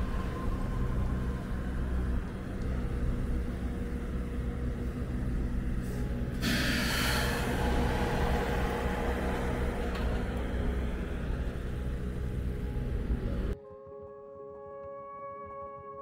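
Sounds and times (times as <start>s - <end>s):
heavy vehicle engine rumble: 0.0s - 13.6s
loud hiss: 6.4s - 10.4s.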